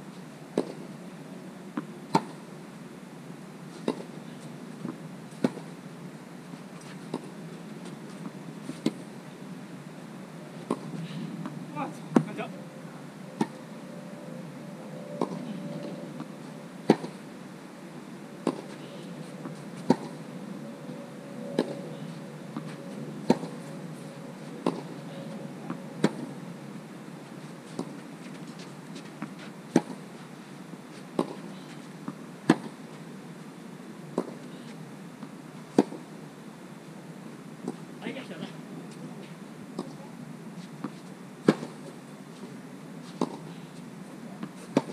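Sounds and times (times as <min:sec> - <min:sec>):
faint steady hum: 0:00.0 - 0:44.9
tennis ball bounces: 0:10.6 - 0:12.4, 0:16.9 - 0:17.2, 0:18.4 - 0:18.8, 0:19.5 - 0:20.2, 0:22.6 - 0:23.6, 0:24.6 - 0:24.9, 0:25.7 - 0:26.2, 0:31.2 - 0:31.4, 0:35.8 - 0:36.0, 0:40.8 - 0:41.8, 0:43.1 - 0:43.4
racquets striking tennis balls: 0:16.9 - 0:17.2, 0:18.4 - 0:18.8, 0:24.6 - 0:24.9, 0:31.2 - 0:32.8, 0:35.8 - 0:36.0, 0:43.1 - 0:43.5.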